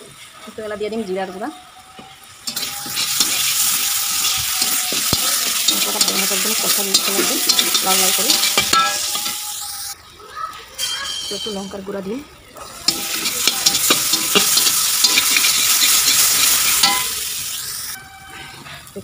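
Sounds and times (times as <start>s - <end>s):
paste sizzling in oil: 0.4s - 10.0s, 12.6s - 18.0s
metal spatula scraping pan: 2.5s - 10.0s, 12.8s - 17.3s.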